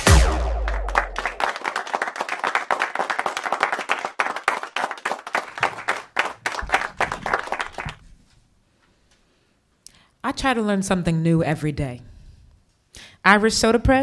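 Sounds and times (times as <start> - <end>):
audience applauding: 0.5 - 8.1.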